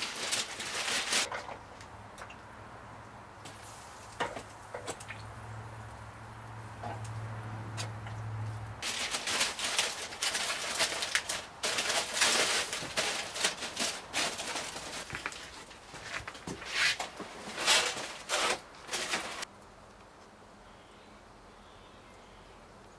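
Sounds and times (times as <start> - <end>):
aluminium foil crinkling: 0.0 - 1.6, 8.8 - 19.5.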